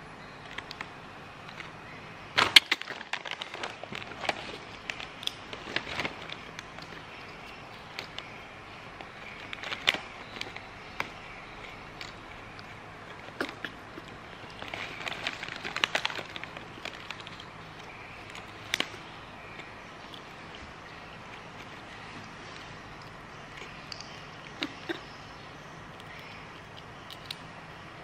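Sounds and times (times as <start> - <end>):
foil snack bag crinkling: 2.4 - 8.4, 9.0 - 21.9.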